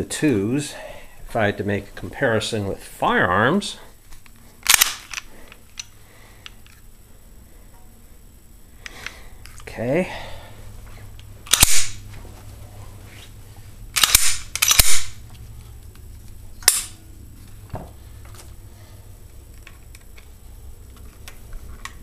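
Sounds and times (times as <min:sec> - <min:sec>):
handgun clacks: 0:04.6 - 0:05.9, 0:11.5 - 0:12.0, 0:14.0 - 0:15.1, 0:16.6 - 0:17.0.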